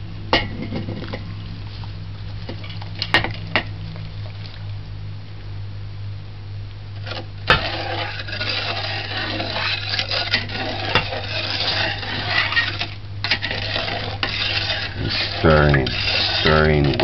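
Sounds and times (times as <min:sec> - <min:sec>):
low steady hum: 0:00.0 - 0:17.0
liquid swishing: 0:00.6 - 0:04.8, 0:07.0 - 0:17.0
spoon scraping and clinking pot: 0:07.1 - 0:17.0.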